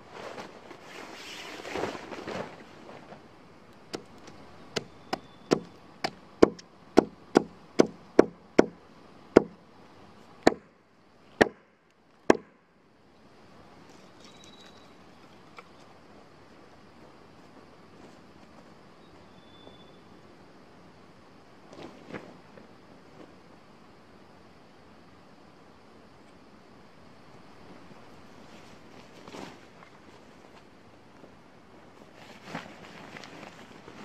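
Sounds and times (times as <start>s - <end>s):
tarp rustling: 0.0s - 3.4s, 28.3s - 30.8s, 31.9s - 34.0s.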